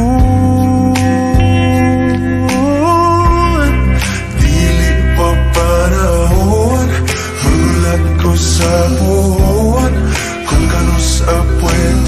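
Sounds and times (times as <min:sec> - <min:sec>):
steady bass line: 0:00.0 - 0:12.0.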